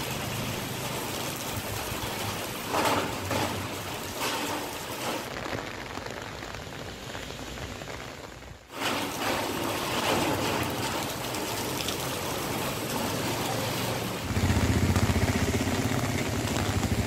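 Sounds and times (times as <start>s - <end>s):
rushing floodwater: 0.0s - 8.0s, 8.7s - 17.0s.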